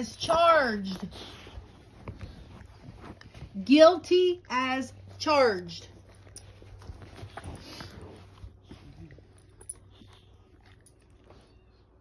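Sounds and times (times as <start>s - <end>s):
dog sniffing: 0.1s - 3.6s, 6.0s - 9.2s.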